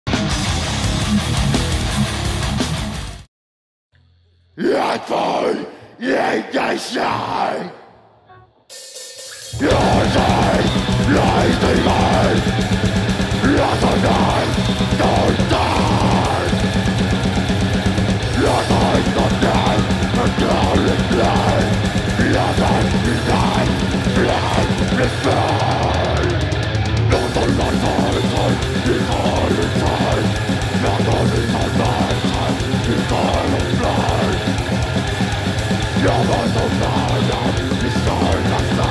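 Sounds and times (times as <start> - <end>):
bass guitar: 0.0 - 3.3, 9.5 - 38.9
distorted electric guitars: 0.1 - 3.3, 4.6 - 7.9, 8.7 - 38.9
harsh vocals: 4.5 - 38.9
very fast drumming: 8.7 - 38.9.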